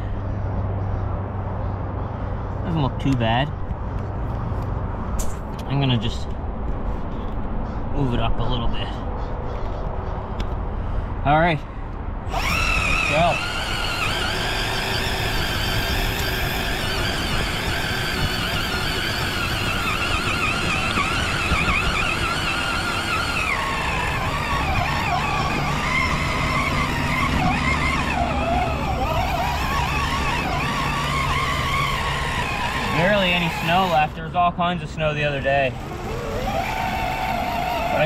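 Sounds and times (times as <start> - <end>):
rc truck motor whining: 12.3 - 34.3, 35.2 - 38.0.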